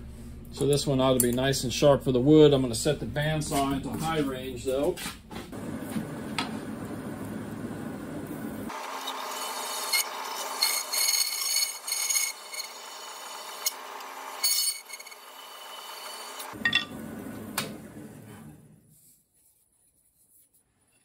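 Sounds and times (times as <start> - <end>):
bandsaw running free: 8.7 - 16.6.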